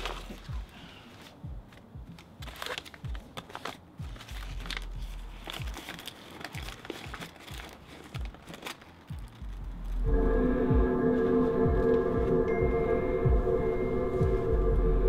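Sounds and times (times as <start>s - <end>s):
paper crinkling: 0.0s - 10.0s
soft low thumps: 9.5s - 15.0s.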